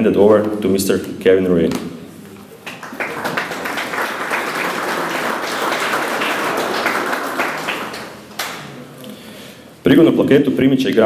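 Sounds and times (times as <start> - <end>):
crowd applauding: 2.6 - 8.6.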